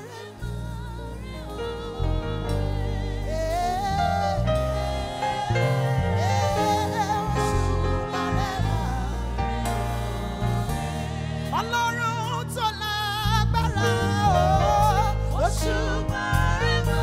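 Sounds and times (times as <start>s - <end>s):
instrumental accompaniment: 0.0s - 12.6s
women singing gospel: 0.0s - 17.0s.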